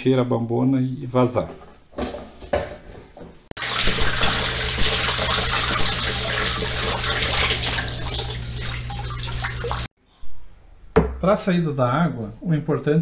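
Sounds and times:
water gushing into plastic drum: 0:03.6 - 0:09.9.

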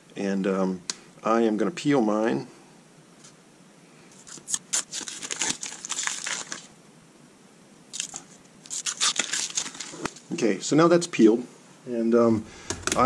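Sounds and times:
masking film peeling crackle: 0:04.1 - 0:06.8, 0:07.9 - 0:10.3.

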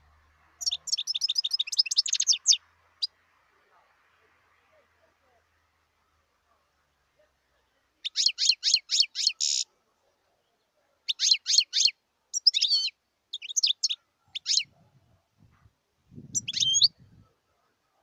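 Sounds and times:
bird twittering: 0:00.6 - 0:03.1, 0:08.0 - 0:09.7, 0:11.1 - 0:14.7, 0:16.3 - 0:17.0.

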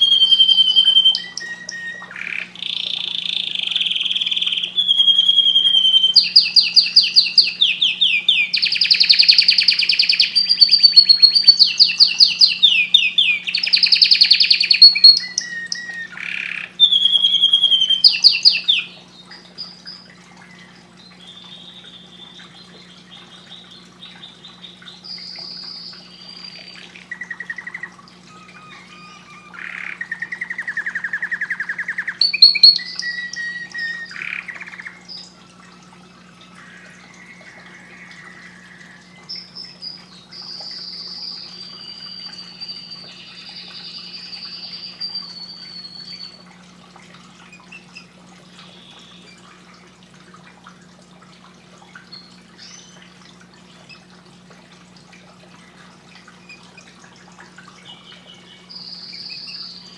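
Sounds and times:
canary singing: 0:00.0 - 0:46.5, 0:52.1 - 0:53.2, 0:57.8 - 0:59.9
steady low hum: 0:14.5 - 0:59.9.

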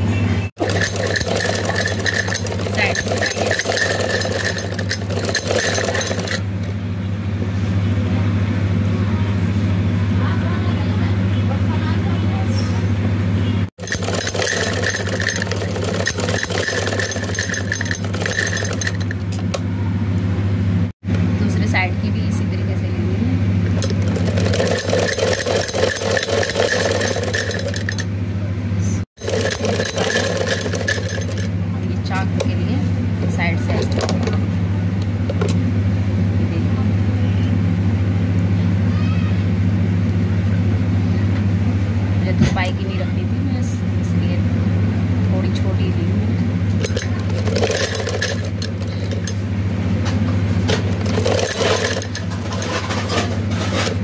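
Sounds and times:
sewing machine running: 0:00.6 - 0:06.8, 0:13.8 - 0:19.4, 0:23.7 - 0:28.1, 0:29.1 - 0:31.6, 0:46.8 - 0:49.4, 0:50.7 - 0:54.0.

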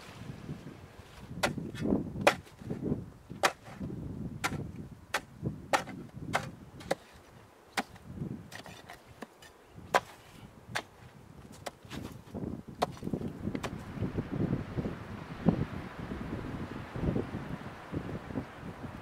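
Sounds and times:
metal bar chopping ice: 0:03.4 - 0:03.8, 0:04.4 - 0:07.1.

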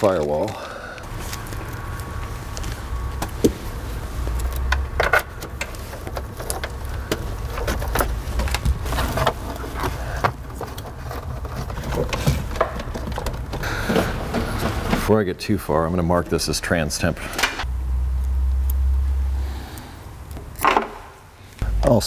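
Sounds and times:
low steady rumble: 0:00.6 - 0:13.6, 0:14.2 - 0:20.6, 0:21.4 - 0:22.0
wire and tools rattling: 0:04.3 - 0:15.2.

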